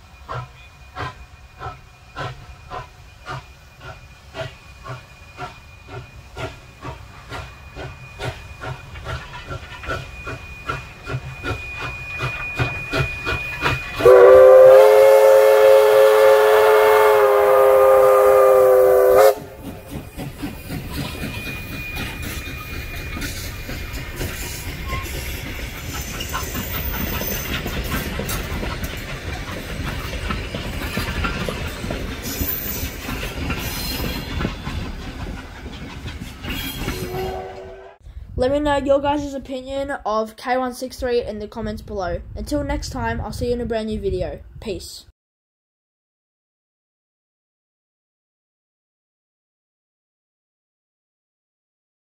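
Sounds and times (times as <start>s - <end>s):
steam locomotive exhaust beats: 0.0s - 39.2s
steam whistle blast: 9.9s - 19.7s, 36.6s - 38.0s.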